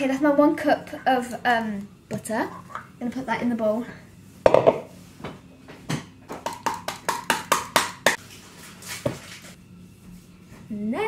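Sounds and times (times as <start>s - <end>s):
spoon scraping and knocking bowl: 4.4s - 4.9s.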